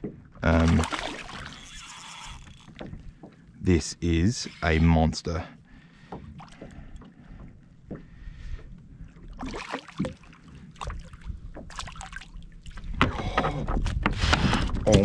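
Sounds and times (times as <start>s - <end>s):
wind rumble on microphone: 12.8s - 15.0s.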